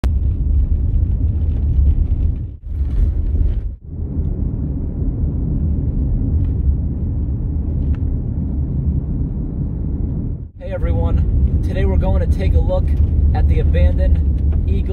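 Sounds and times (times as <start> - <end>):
vehicle driving on gravel: 0.0 - 9.4, 10.6 - 14.9.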